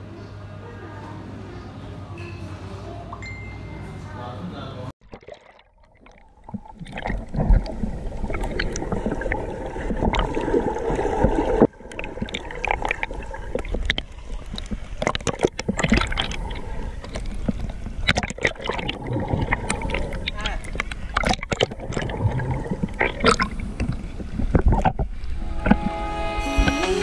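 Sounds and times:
water splashing and gurgling: 0:05.0 - 0:26.0.

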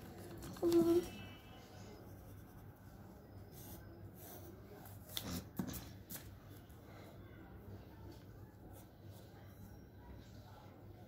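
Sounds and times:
pencil drawing on paper: 0:01.8 - 0:06.2.

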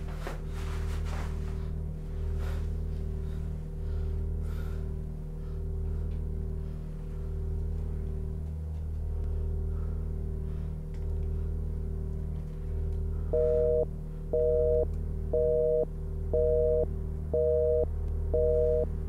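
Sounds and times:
low steady drone: 0:00.0 - 0:19.0
telephone busy signal beeps: 0:13.4 - 0:13.8, 0:14.4 - 0:14.8, 0:15.4 - 0:15.8, 0:16.4 - 0:18.9.

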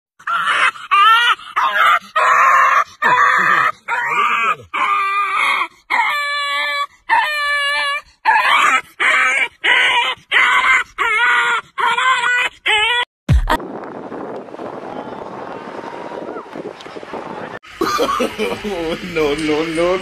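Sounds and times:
dog whining: 0:00.2 - 0:13.1.

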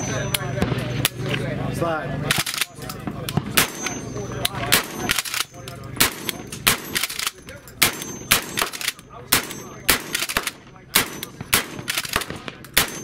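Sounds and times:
shotgun shots with ringing tail: 0:02.3 - 0:05.4, 0:06.0 - 0:13.0.

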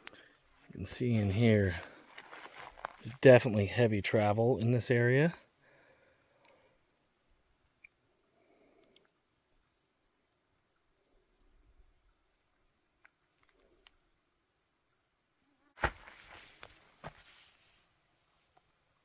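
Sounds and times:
insect chirping: 0:00.0 - 0:00.6, 0:05.4 - 0:15.7, 0:16.3 - 0:19.0
steady high insect trill: 0:05.4 - 0:15.7.

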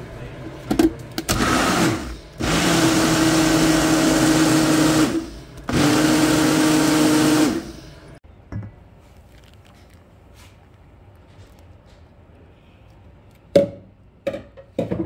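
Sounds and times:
blender motor running: 0:01.3 - 0:08.2.

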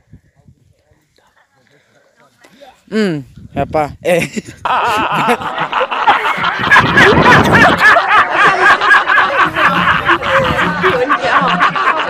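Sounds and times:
high-pitched giggling: 0:04.4 - 0:12.0.

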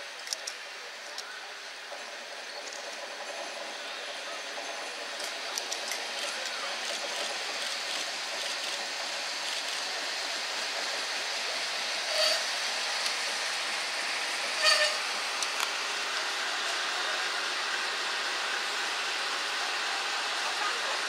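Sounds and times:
diesel locomotive engine running: 0:00.0 - 0:21.0
short squeals: 0:12.1 - 0:12.5, 0:14.6 - 0:15.0.

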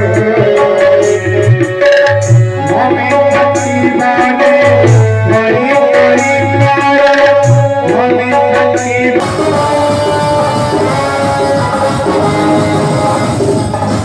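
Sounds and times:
hand-drum strokes: 0:00.0 - 0:14.0
held melody line: 0:00.0 - 0:14.0
heavy pulsing bass beat: 0:09.2 - 0:14.0.

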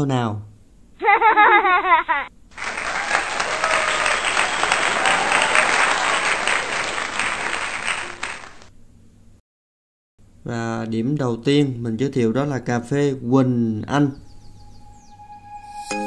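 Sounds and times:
applause: 0:02.5 - 0:08.7.

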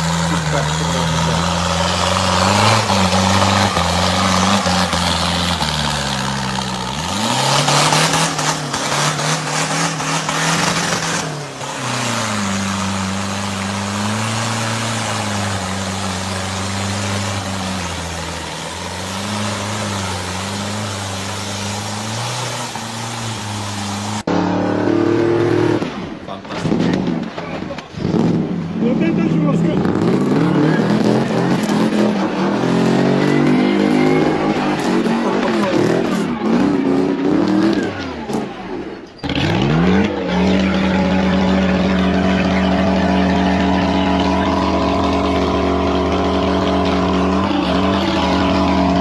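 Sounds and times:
mud and water splashing: 0:00.0 - 0:24.3
diesel truck engine revving: 0:00.0 - 0:49.0.

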